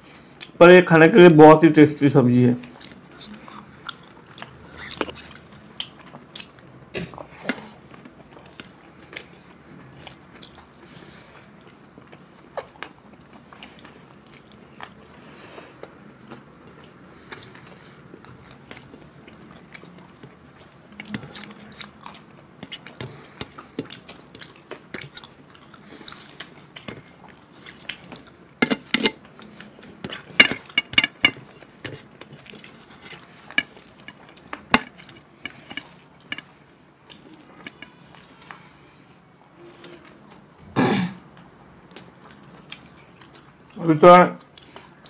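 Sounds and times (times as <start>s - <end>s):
chewing and mouth smacks: 2.6s - 40.6s, 41.2s - 43.8s, 44.4s - 45.0s
clicks and taps on steel plates: 28.6s - 29.2s, 30.4s - 31.4s, 34.7s - 36.5s.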